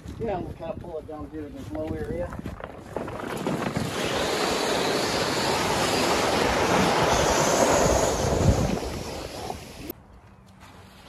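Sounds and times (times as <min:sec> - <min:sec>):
water rushing out: 0:03.4 - 0:09.9.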